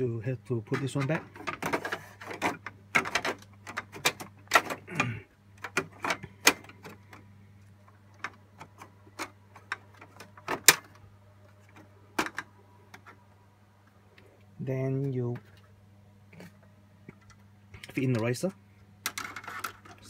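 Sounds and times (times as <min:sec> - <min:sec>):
steady low hum: 0:00.0 - 0:20.0
plastic clicks and knocks: 0:11.7 - 0:13.2.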